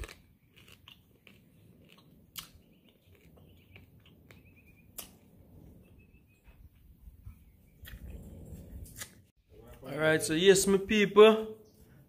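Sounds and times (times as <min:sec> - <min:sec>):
bird chirping faintly: 0:02.6 - 0:05.0, 0:05.7 - 0:08.1.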